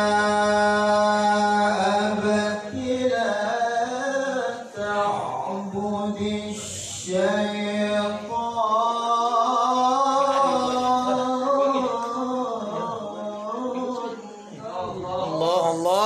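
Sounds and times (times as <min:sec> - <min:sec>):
man chanting into a microphone: 0:00.0 - 0:16.0.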